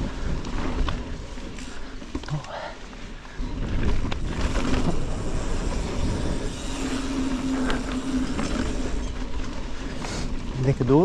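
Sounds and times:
bike rattle: 0.0 - 11.0
bike tyres on dirt trail: 0.0 - 11.0
wind buffeting microphone: 3.2 - 10.9.

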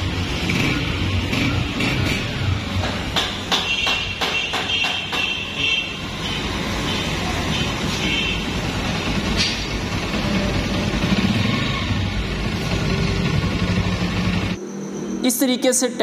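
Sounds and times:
motorcycle engine running: 0.0 - 3.1, 8.4 - 14.6.

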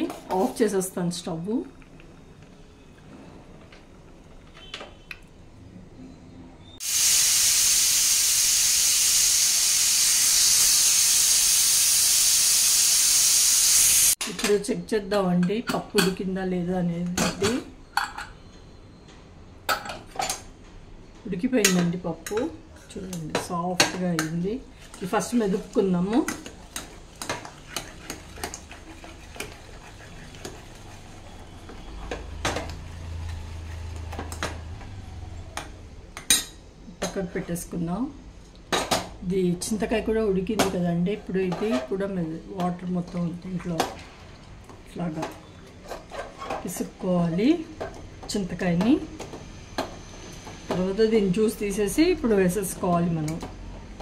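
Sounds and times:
pressure cooker steam hissing: 6.8 - 14.2.

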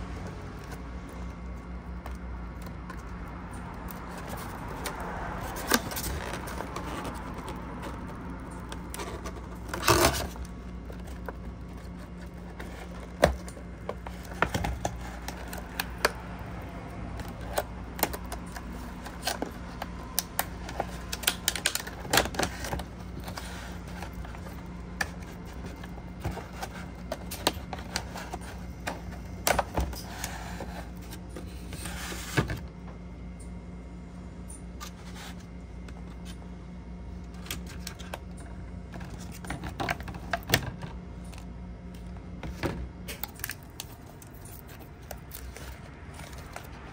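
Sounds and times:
steady low hum: 0.0 - 46.9
thin plastic crackling and clicking: 17.1 - 29.1.

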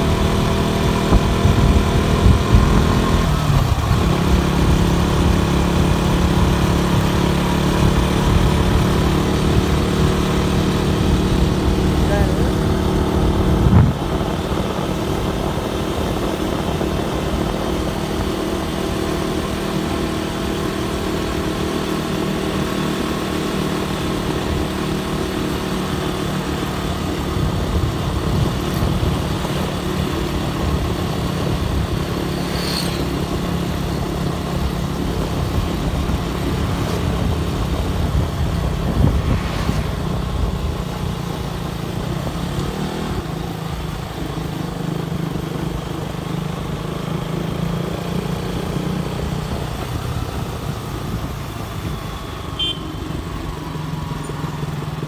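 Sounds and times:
wind noise on microphone: 0.0 - 7.1, 7.7 - 18.4, 27.2 - 32.4, 33.0 - 43.3
motorcycle engine running: 0.0 - 55.0.

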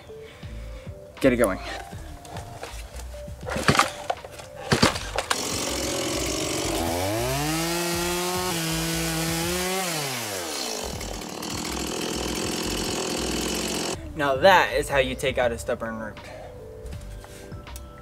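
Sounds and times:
chain cutting tree root: 3.4 - 14.0
chainsaw pull-starting: 4.7 - 14.0
chainsaw revving: 4.8 - 14.0.

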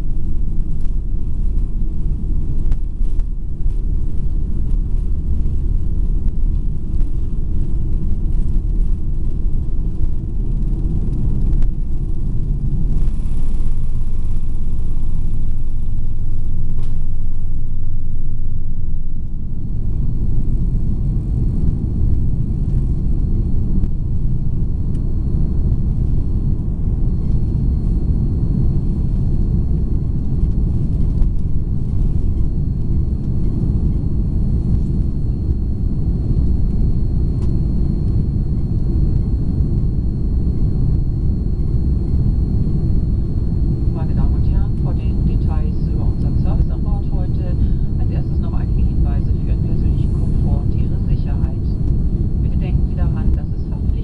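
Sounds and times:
faint high whine: 0.0 - 54.0
jet engines rumbling in cabin: 0.0 - 54.0.

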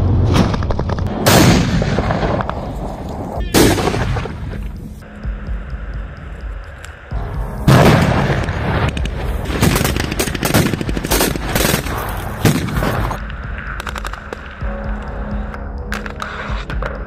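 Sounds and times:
scattered gunshots: 3.5 - 4.5, 7.7 - 13.2
automatic gunfire in rapid bursts: 9.4 - 13.1.

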